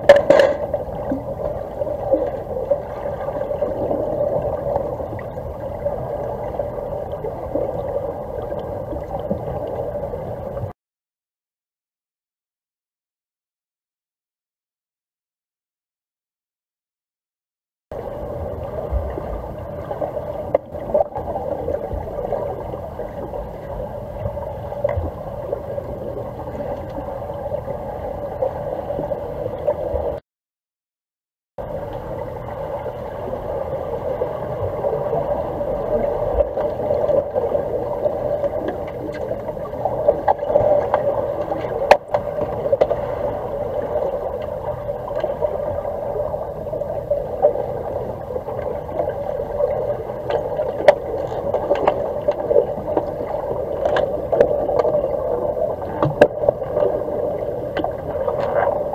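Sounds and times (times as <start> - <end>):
muffled underwater rushing: 0.0 - 10.7, 17.9 - 30.2, 31.6 - 58.9.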